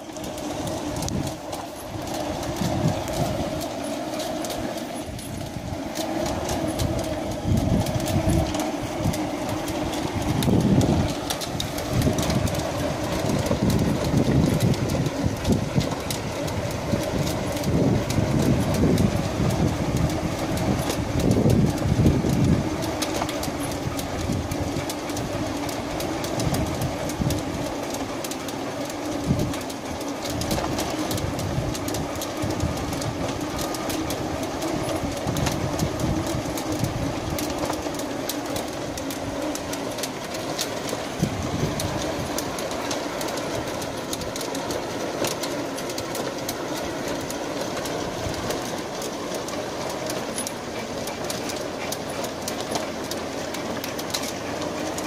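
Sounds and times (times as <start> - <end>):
treadmill rolling hum: 0.0 - 55.0
treadmill slats clattering: 0.0 - 55.0.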